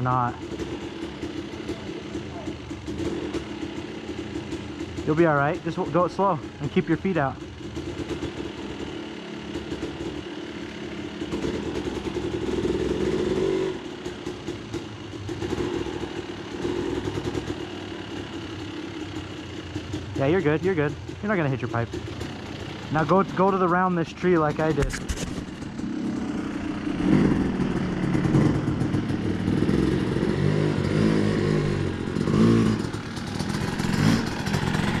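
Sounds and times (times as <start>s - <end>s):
dirt bike engine: 0.0s - 35.0s.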